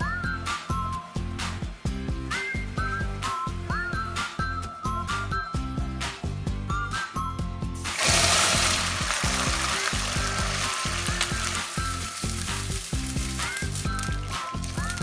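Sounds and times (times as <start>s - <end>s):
background music with steady beat: 0.0s - 15.0s
caramel sizzling in a wok: 7.8s - 15.0s
water pouring: 7.8s - 15.0s.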